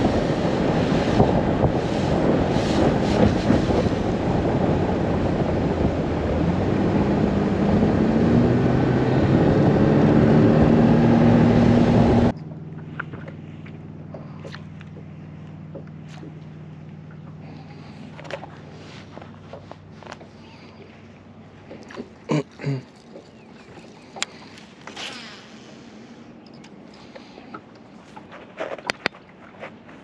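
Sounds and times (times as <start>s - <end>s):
wind rushing over microphone: 0.0s - 12.4s
low steady hum: 0.0s - 30.0s
outboard motor running: 0.0s - 30.0s.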